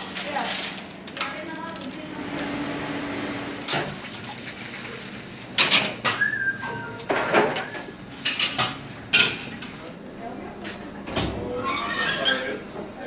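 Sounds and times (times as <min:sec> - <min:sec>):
metal pans clattering: 0:05.6 - 0:09.6.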